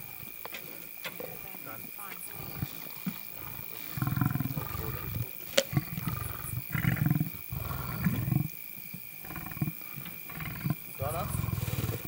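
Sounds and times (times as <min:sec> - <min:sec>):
lions growling: 0:02.2 - 0:08.5, 0:09.2 - 0:12.0.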